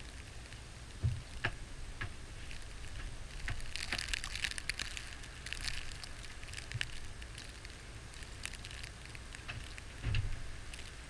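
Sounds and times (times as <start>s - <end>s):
snow ticking against camera: 0.0s - 11.0s
wind buffeting microphone: 9.5s - 11.0s.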